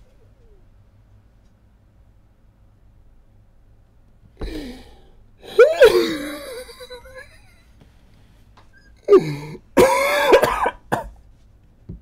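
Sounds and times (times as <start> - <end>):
man laughing: 5.4 - 7.7.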